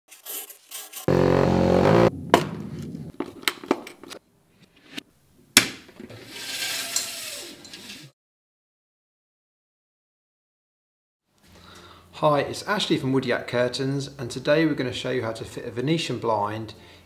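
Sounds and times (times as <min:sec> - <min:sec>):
loud low hum: 0:01.1 - 0:03.1.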